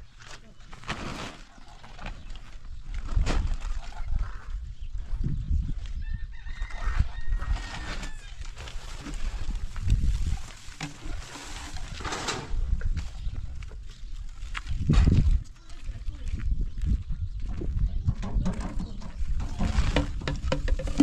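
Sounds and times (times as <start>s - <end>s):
rooster crowing: 6.2s - 8.3s.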